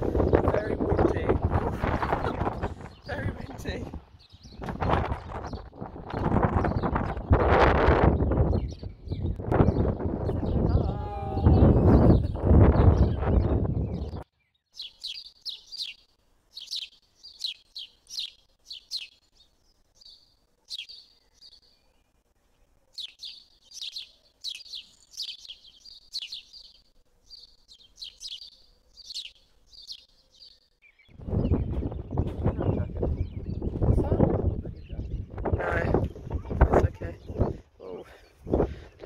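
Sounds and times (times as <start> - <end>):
wind rumbling on microphone: 0.0 - 14.3, 31.0 - 39.0
small bird chirping: 0.2 - 39.0.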